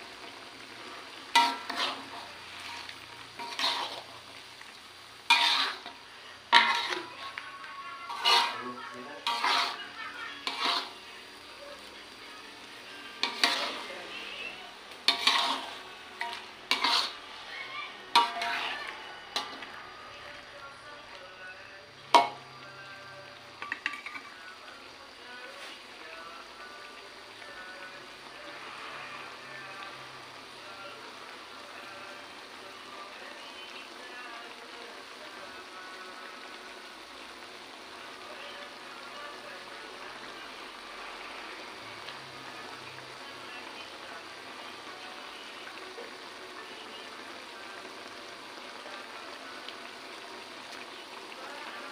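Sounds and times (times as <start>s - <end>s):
squid sizzling in a wok: 0.0s - 51.9s
spatula scraping wok: 0.2s - 11.9s, 12.6s - 20.4s, 21.9s - 22.7s, 23.6s - 24.6s.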